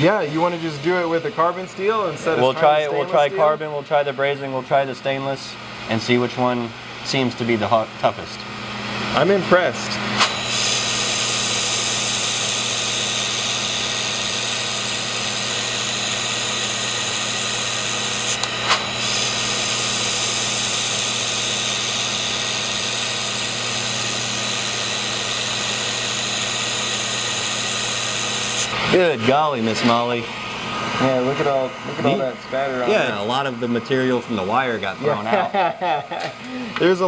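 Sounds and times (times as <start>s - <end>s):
welding equipment hum: 5.5s - 37.0s
laser welding hiss: 10.2s - 28.7s.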